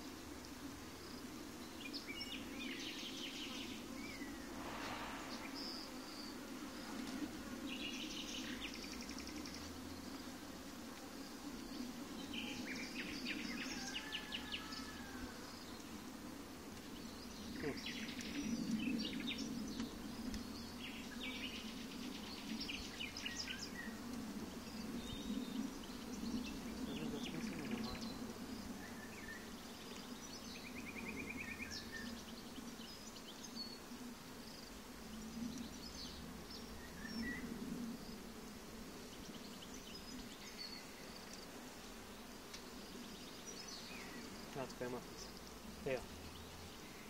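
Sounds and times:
honeybees humming: 0.0 - 47.0
birds chirping: 1.8 - 6.8, 24.7 - 33.8.

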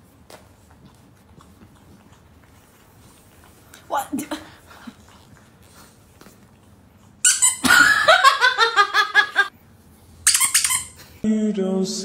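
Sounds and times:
rubber squeaky toy squeaking: 7.2 - 7.6, 10.3 - 11.0.

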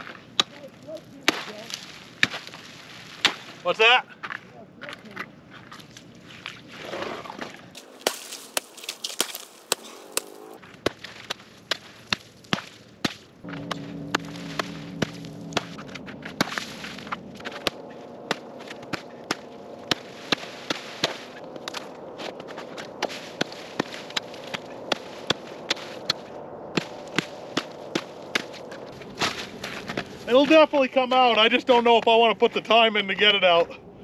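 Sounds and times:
hatchet chopping ice: 1.2 - 1.5, 2.2 - 2.5, 7.8 - 13.2.

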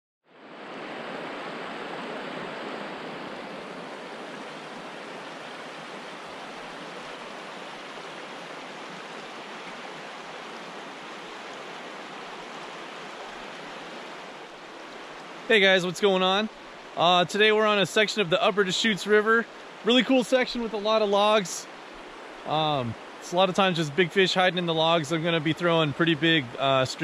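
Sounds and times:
river rushing over rocks: 0.5 - 18.4.

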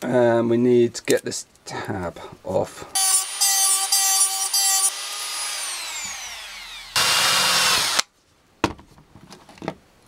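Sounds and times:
power tool burst: 3.0 - 8.0
rotary tool grinding metal: 3.0 - 8.0.

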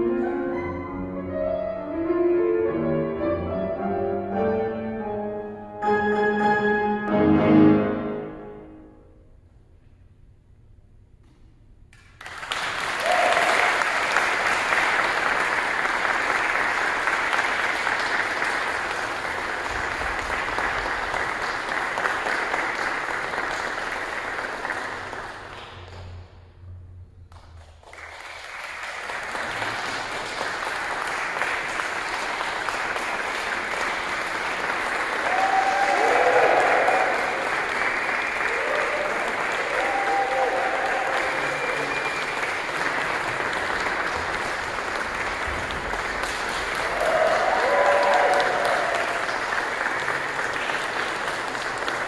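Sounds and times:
audience applause: 12.0 - 26.3, 27.3 - 52.0.

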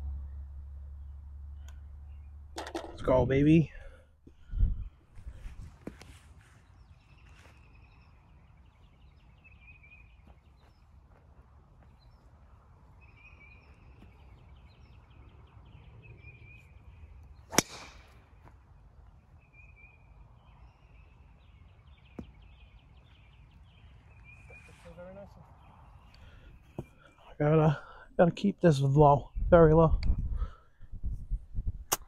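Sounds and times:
birds chirping: 0.1 - 30.8
golf club striking ball: 17.5 - 18.1.

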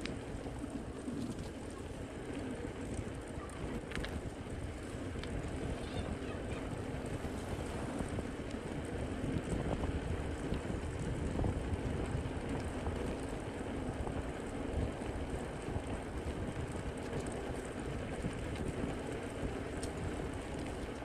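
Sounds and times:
faint ticks: 0.0 - 6.1, 10.4 - 13.4, 14.8 - 21.0
bicycle tyres rumbling on asphalt: 0.0 - 21.0
wind buffeting microphone: 0.0 - 21.0.

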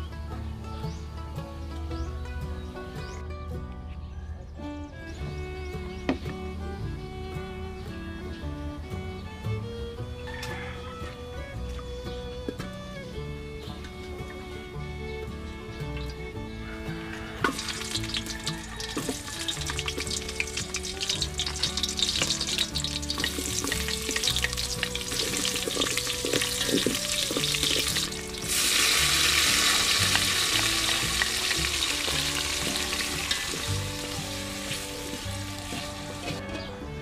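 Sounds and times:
onions sizzling in hot oil: 17.5 - 36.4.

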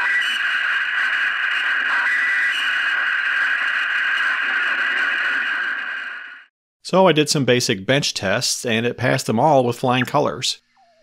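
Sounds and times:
radio receiver noise: 0.0 - 6.5, 9.9 - 10.3.

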